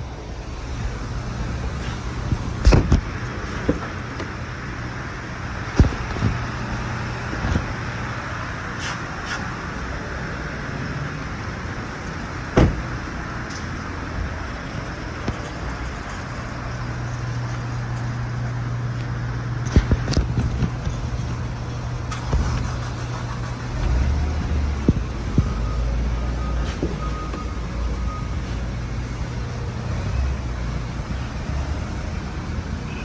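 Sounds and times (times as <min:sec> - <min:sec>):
car door shutting with a thud: 0:12.6 - 0:12.9.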